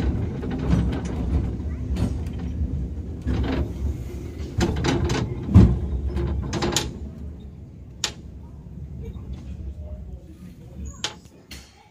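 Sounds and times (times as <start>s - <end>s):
metallic clanks and knocks: 0.0s - 2.6s, 3.2s - 7.1s
tram rumbling: 0.0s - 11.9s.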